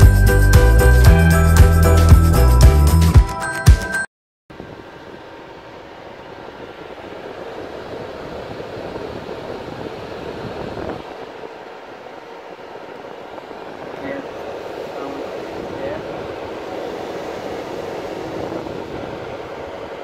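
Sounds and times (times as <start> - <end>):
background music: 0.0 - 4.0
fan airflow noise: 4.5 - 20.0.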